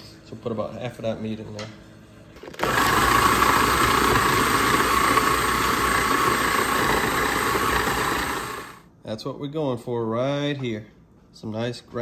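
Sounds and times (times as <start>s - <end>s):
food processor grinding meat: 2.4s - 8.8s.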